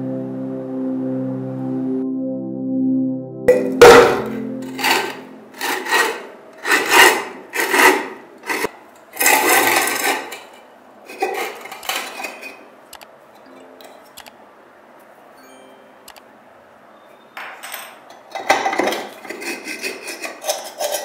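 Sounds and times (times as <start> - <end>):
rusty metal scraping: 3.5 - 12.8, 18.3 - 21.0.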